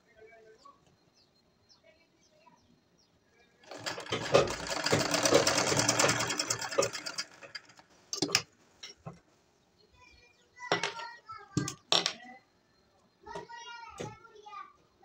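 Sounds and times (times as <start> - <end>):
sewing machine stitching: 3.6 - 8.5.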